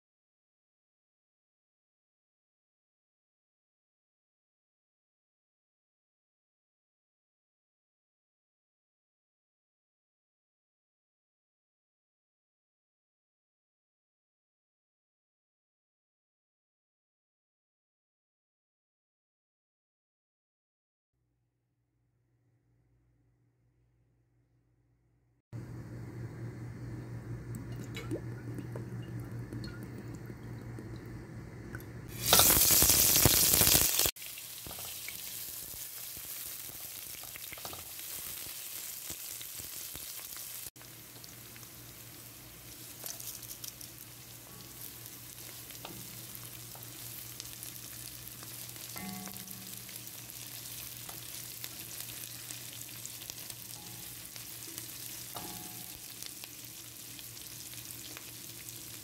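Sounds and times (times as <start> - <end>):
onions sizzling in hot oil: 32.1 - 59.0.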